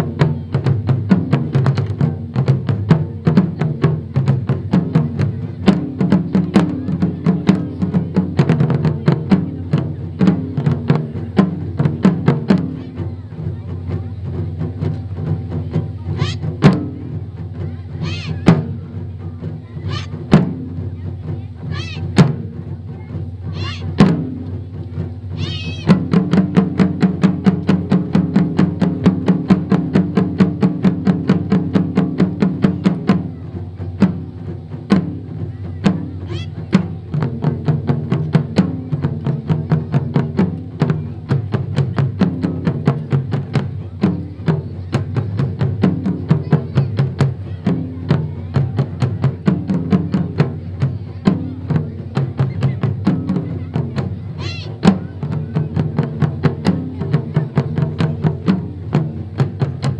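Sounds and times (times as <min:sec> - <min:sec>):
barrel drums played with sticks: 0:00.0 - 0:59.9
people shouting calls: 0:16.1 - 0:16.6, 0:17.9 - 0:18.7, 0:19.8 - 0:20.3, 0:21.6 - 0:22.2, 0:23.4 - 0:24.0, 0:25.3 - 0:26.1, 0:36.0 - 0:36.8, 0:54.0 - 0:55.4.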